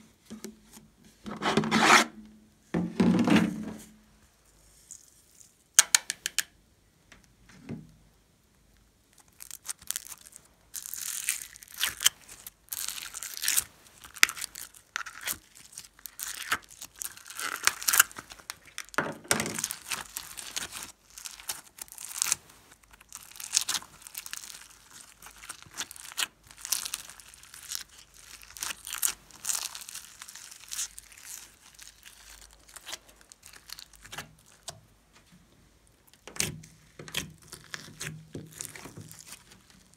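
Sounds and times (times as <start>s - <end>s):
slime crackling and tearing: 9.1s - 34.8s, 36.0s - 39.9s.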